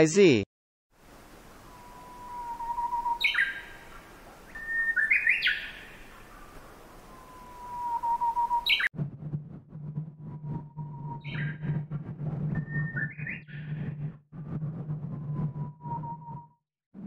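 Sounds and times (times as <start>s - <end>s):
nightingale singing: 1.7s - 8.9s.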